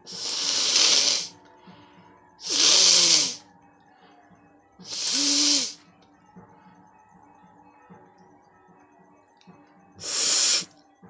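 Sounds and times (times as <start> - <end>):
woman blowing through nose: 0.1 - 1.3, 2.4 - 3.4, 4.8 - 5.8.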